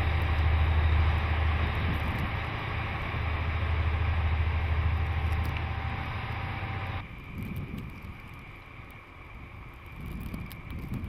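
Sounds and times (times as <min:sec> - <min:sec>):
rotary blower throwing snow: 0:00.0 - 0:07.0
deep diesel engine: 0:00.0 - 0:07.1.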